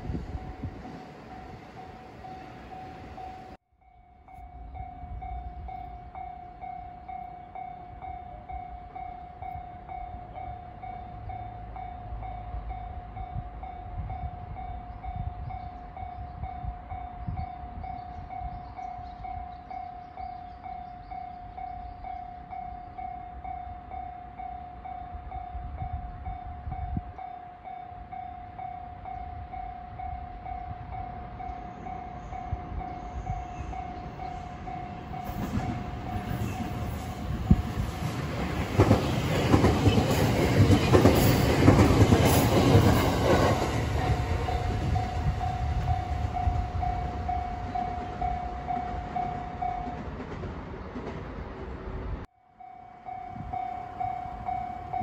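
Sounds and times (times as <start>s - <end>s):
train rumble: 0.0s - 3.6s, 4.3s - 55.0s
level crossing bell ringing: 52.5s - 55.0s.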